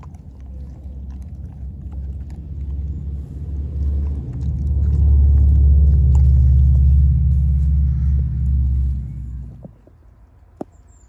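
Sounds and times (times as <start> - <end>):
dog crunching bones: 0.0 - 7.2
low rumble: 0.0 - 9.8.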